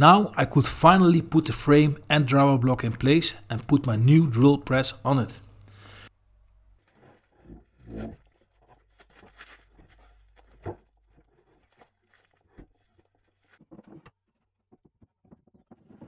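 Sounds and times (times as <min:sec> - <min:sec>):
wood knocking and scraping on wood: 0:06.8 - 0:16.0.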